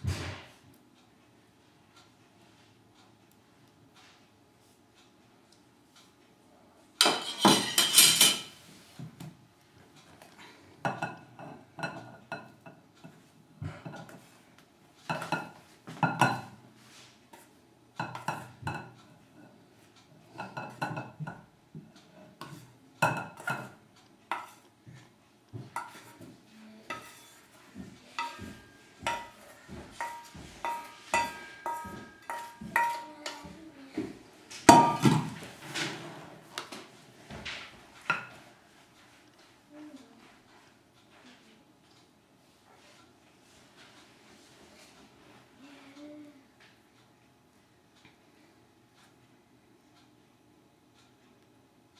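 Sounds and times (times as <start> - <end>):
kitchenware clattering: 7.0 - 8.6, 10.8 - 14.2, 15.0 - 16.6, 18.0 - 19.5, 20.3 - 21.5, 22.4 - 24.7, 25.7 - 26.3, 26.9 - 33.6, 34.6 - 36.0
spoon knocking glass bowl: 30.0 - 33.0.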